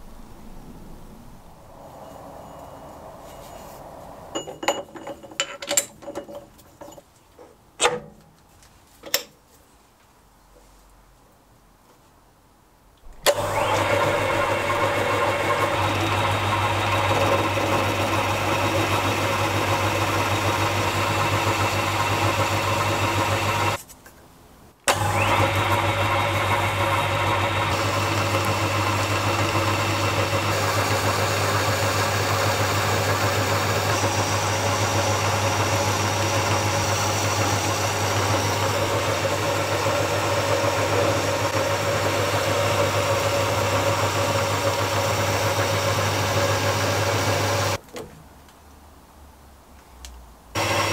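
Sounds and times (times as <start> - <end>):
lathe motor whining and humming: 13.2 - 23.8, 24.9 - 47.8, 50.6 - 50.9.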